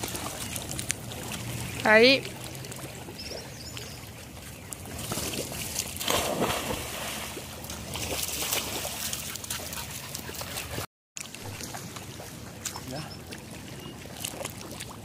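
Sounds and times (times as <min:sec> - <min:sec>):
water sloshing while swimming: 0:00.0 - 0:15.0
person splashing into sea: 0:05.1 - 0:09.0.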